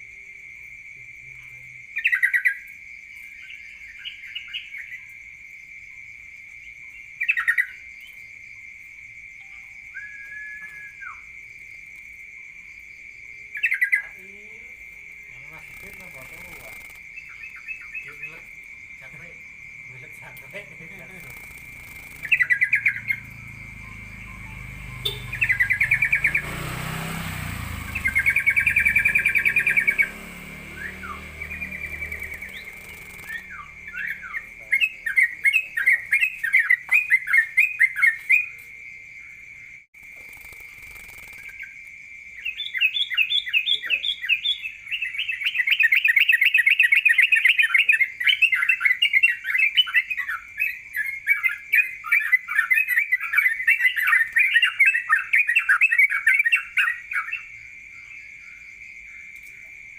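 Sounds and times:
songbird trilling rapid notes: 2.0s - 2.7s, 3.3s - 5.2s, 7.0s - 8.2s, 9.4s - 11.4s, 13.4s - 38.6s, 40.0s - 41.8s, 42.4s - 57.5s
steady high tone: 20.8s - 35.0s.

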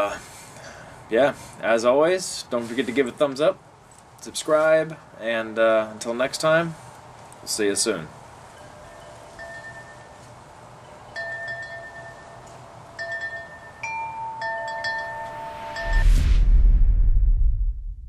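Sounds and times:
chimes ringing: 8.5s - 16.1s
deep rumble with rising rush: 15.4s - 18.0s.

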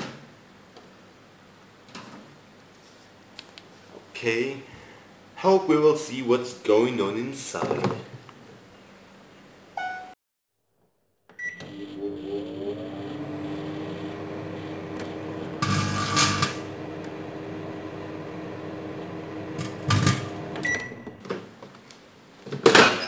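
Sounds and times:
microwave keypad beeping: 9.8s - 10.2s, 11.4s - 12.4s, 19.8s - 21.2s
microwave humming: 11.3s - 21.3s.

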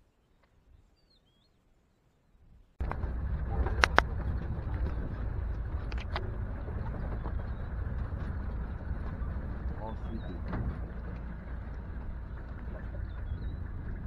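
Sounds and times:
faint bird chirp: 0.0s - 2.8s, 6.8s - 7.9s, 9.2s - 10.5s, 12.2s - 14.0s
sharp knocks and rattles: 2.8s - 14.0s
vehicle driving rumble from inside: 2.8s - 14.0s.

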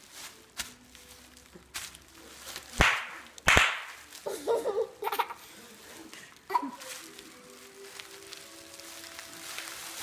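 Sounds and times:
bubble wrap popping: 0.0s - 5.2s, 5.8s - 10.0s
baby giggling: 4.2s - 5.5s.

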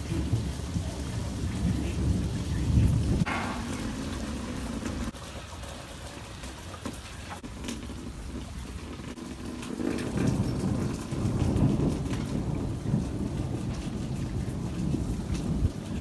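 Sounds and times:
thunder rumbling: 0.0s - 5.6s, 7.4s - 16.0s
rain falling: 0.0s - 16.0s
sharp raindrops: 0.0s - 16.0s.

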